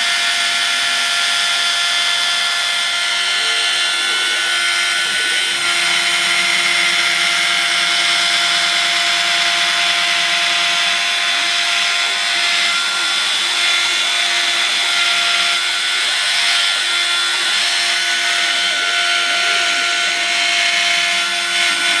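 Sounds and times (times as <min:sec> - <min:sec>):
cutter rasping through plastic: 0:00.0 - 0:22.0
mill spindle whining: 0:00.0 - 0:22.0.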